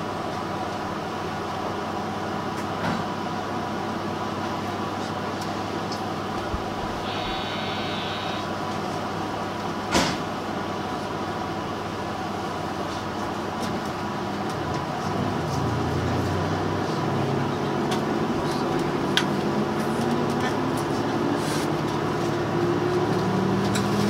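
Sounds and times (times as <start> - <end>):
railcar engine hum: 0.0 - 24.0
short high buzzing tone: 7.0 - 8.6.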